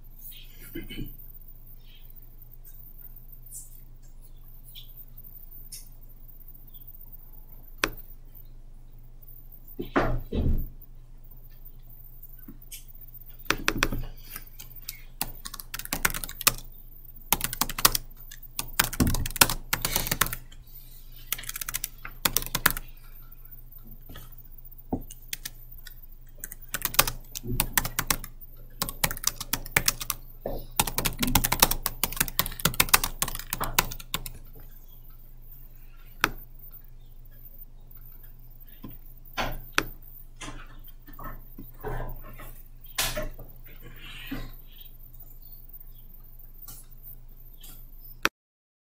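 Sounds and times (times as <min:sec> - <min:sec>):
keyboard typing: 0:07.8 - 0:08.1, 0:12.7 - 0:20.6, 0:21.2 - 0:24.3, 0:24.9 - 0:35.2, 0:36.0 - 0:40.1.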